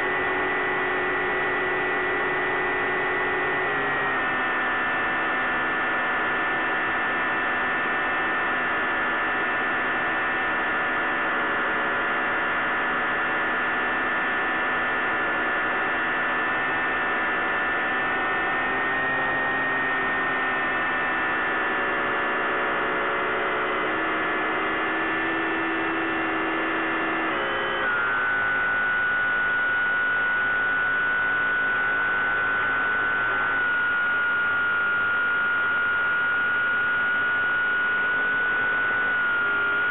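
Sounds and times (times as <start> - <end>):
electric motor and propeller hum: 17.9 - 39.9.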